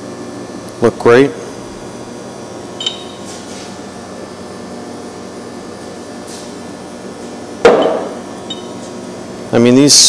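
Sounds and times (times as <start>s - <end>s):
room ventilation hum: 0.0s - 10.0s
metallic clank with ringing: 7.7s - 8.8s.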